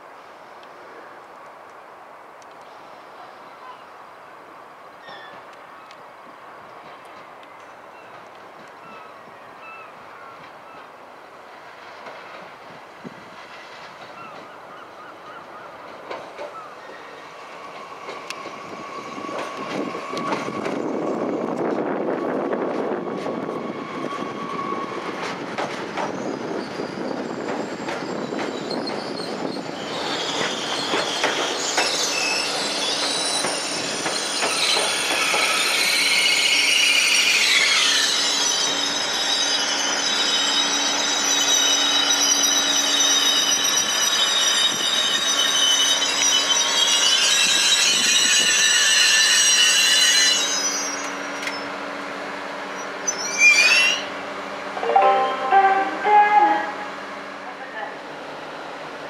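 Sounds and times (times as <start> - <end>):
train rumbling: 5.0 - 59.0
metallic brake squeal: 18.6 - 21.1, 26.1 - 51.7, 52.8 - 54.2.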